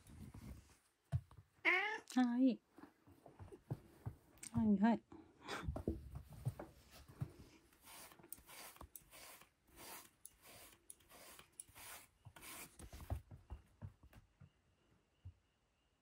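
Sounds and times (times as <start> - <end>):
brush rasping through fur: 7.7 - 13.1.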